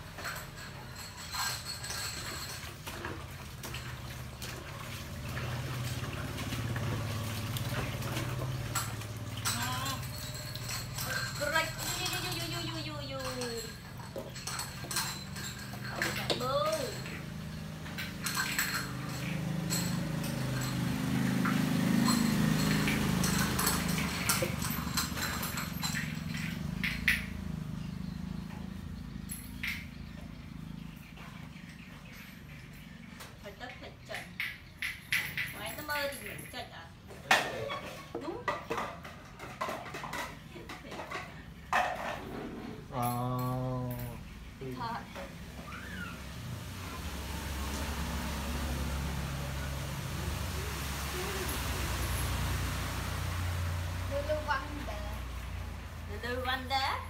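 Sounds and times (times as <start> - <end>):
water splashing in a plastic bucket: 2.4 - 11.0, 45.2 - 56.1.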